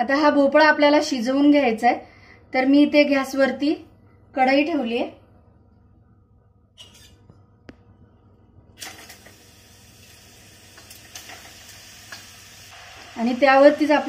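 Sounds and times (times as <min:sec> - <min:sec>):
faint sizzle: 0:08.6 - 0:14.0.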